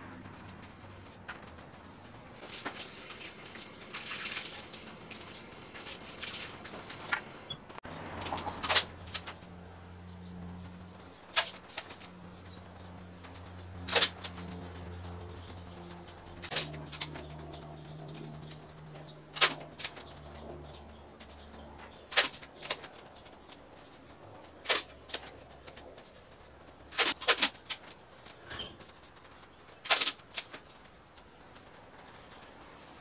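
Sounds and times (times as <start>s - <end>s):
masking tape ripping: 13.8s - 14.5s, 16.4s - 17.4s, 19.3s - 20.2s, 24.6s - 25.8s, 29.8s - 30.6s.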